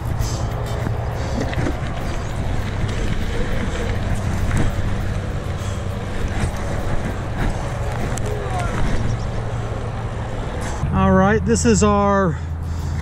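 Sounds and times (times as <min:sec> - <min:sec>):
bike tyres rolling on dirt: 0:00.0 - 0:10.8
highway traffic: 0:00.0 - 0:13.0.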